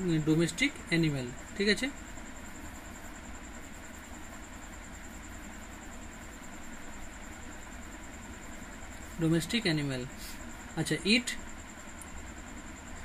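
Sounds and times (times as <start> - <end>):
faint high-pitched whine: 0.0 - 13.0
low background hum: 0.0 - 13.0
pencil scratching on paper: 2.2 - 7.6.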